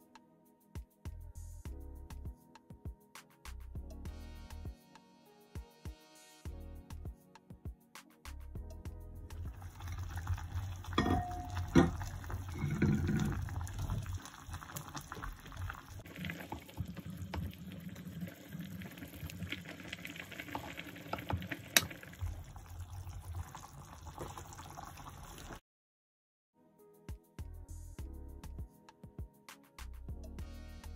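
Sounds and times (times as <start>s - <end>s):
broth bubbling in a pot: 9.3s - 25.6s
utensil knocking against pot: 11.0s - 13.5s.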